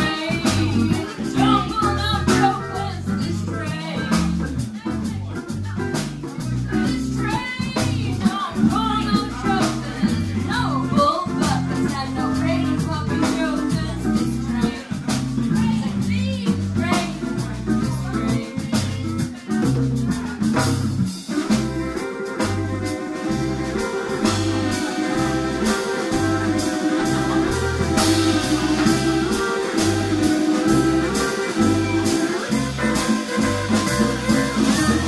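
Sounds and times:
bass line: 0.0s - 35.0s
guitar: 0.0s - 35.0s
hand drums: 0.0s - 35.0s
violin: 21.6s - 35.0s.

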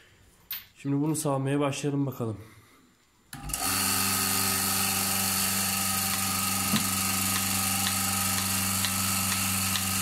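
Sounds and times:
vacuum pump motor humming: 3.4s - 10.0s.

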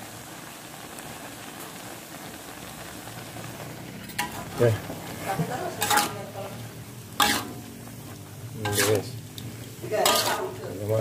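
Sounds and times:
food sizzling in a wok: 0.0s - 11.0s
spatula scraping and stirring: 4.0s - 11.0s.

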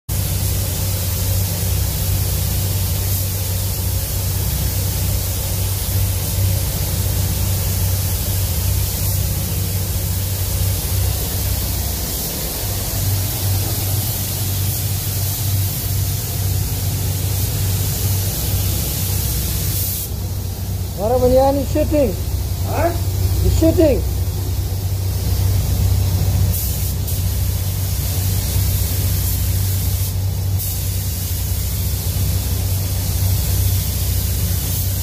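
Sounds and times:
spray gun hissing: 0.1s - 35.0s
ventilation hum: 0.1s - 35.0s.

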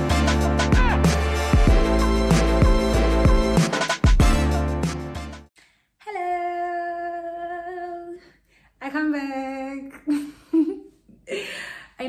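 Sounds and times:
woman singing long notes: 6.0s - 8.2s.

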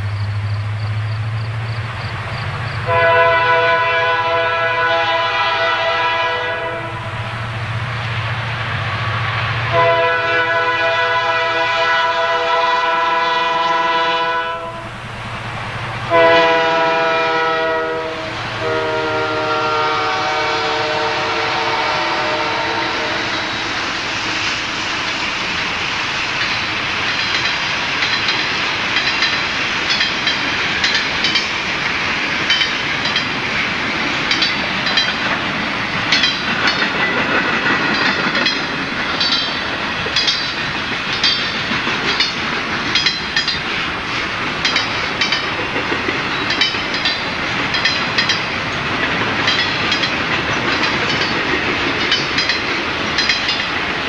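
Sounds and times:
freight cars rumbling: 0.0s - 54.0s
train air horn blasts: 2.8s - 7.2s, 9.7s - 15.0s, 16.1s - 23.7s
wheels clicking over rail joints: 24.2s - 54.0s.

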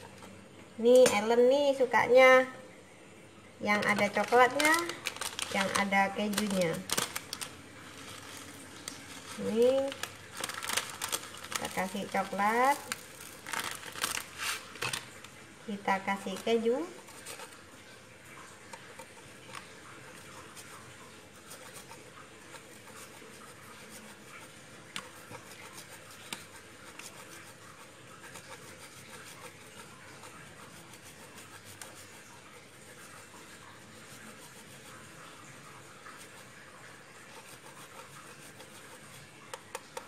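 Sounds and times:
cheese grating on metal grater: 3.8s - 15.0s, 37.3s - 40.0s.

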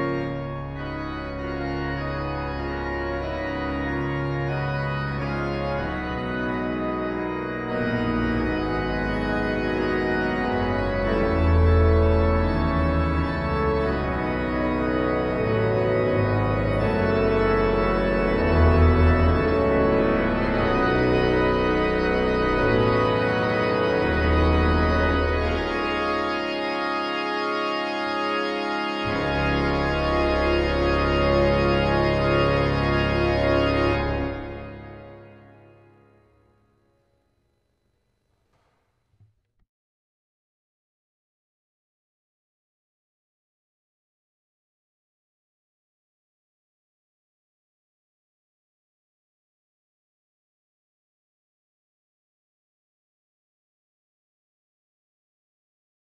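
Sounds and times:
low bass notes: 0.0s - 35.7s
organ chords: 0.0s - 37.0s.

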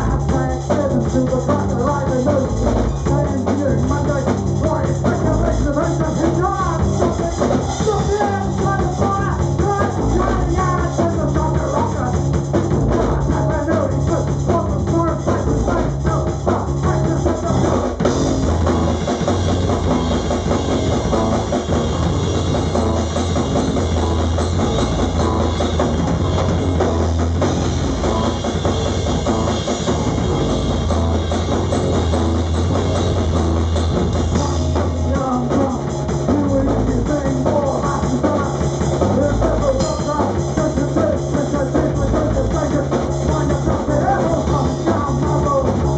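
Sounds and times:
drum kit: 0.0s - 45.9s
electric guitar: 0.0s - 45.9s.

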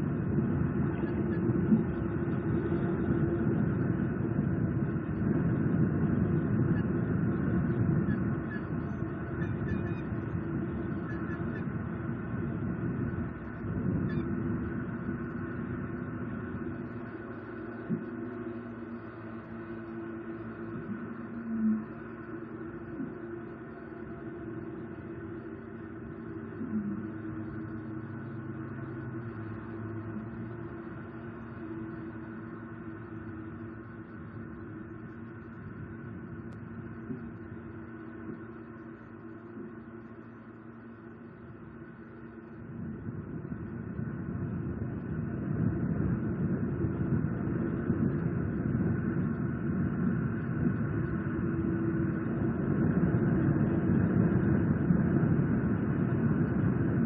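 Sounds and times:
low background hum: 0.0s - 57.0s.

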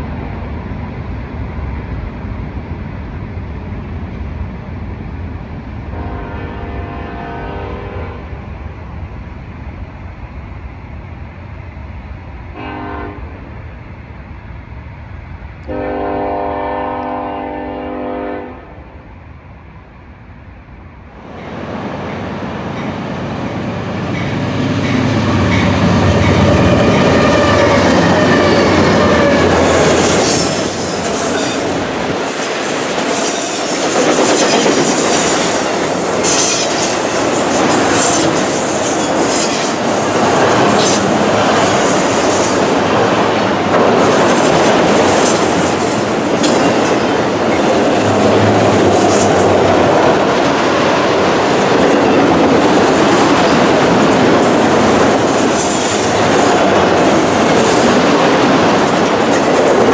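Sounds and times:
diesel locomotives rumbling by: 0.0s - 59.9s
locomotive horn blasts: 6.0s - 8.3s, 12.6s - 13.3s, 15.7s - 18.8s
train wheel clatter and squealing: 21.4s - 59.9s.

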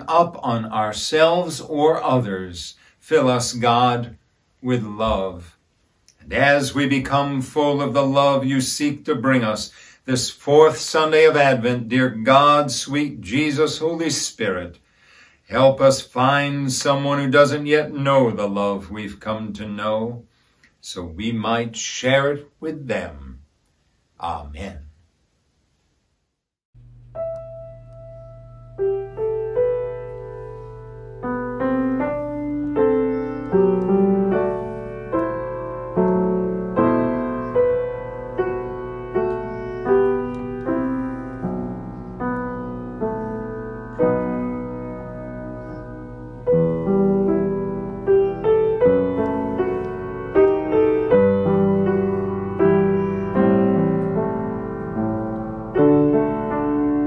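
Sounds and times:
low steady hum: 26.8s - 32.7s
piano music: 26.8s - 57.0s.

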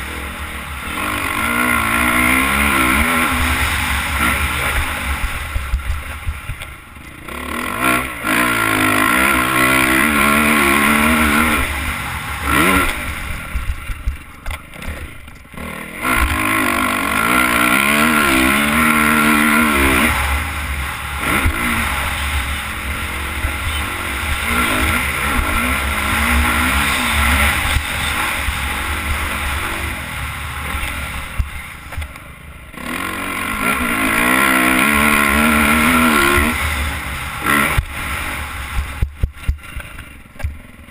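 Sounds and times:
low wind rush: 0.0s - 40.3s
dirt bike engine revving: 0.0s - 40.9s.

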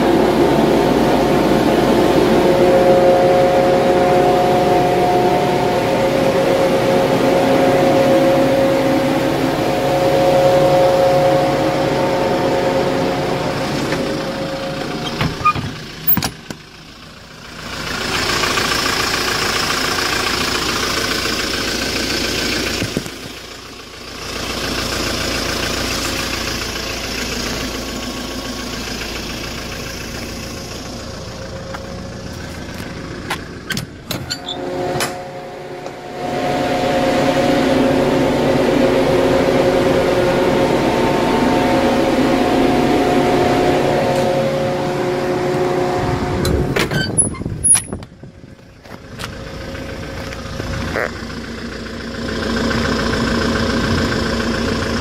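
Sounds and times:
evaporator fans two-note hum: 0.0s - 15.5s, 34.3s - 46.8s
diesel engine idling: 0.0s - 55.0s.

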